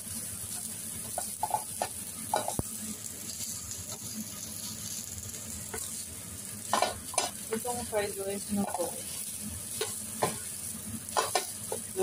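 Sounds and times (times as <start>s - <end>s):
rice sizzling in a pan: 0.0s - 12.0s
spatula scraping and knocking pan: 1.0s - 2.6s, 6.7s - 7.7s, 8.6s - 10.5s, 11.1s - 11.9s.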